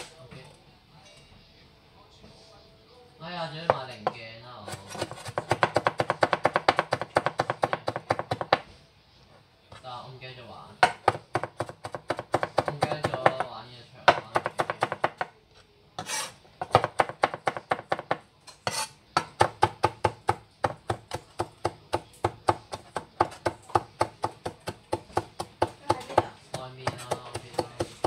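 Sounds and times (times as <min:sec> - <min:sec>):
knife chopping on cutting board: 0:03.7 - 0:08.7, 0:10.8 - 0:13.5, 0:14.1 - 0:15.3, 0:16.0 - 0:28.0.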